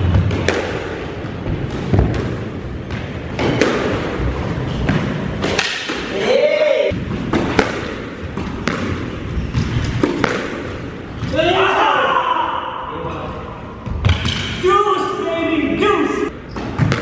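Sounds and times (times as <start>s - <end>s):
squash ball hits: 0.0s - 6.2s, 6.9s - 11.4s, 16.6s - 17.0s.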